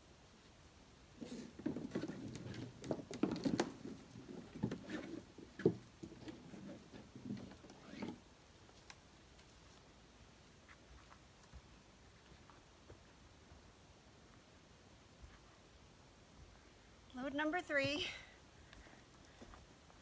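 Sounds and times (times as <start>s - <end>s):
wooden sticks clattering: 1.2s - 7.7s.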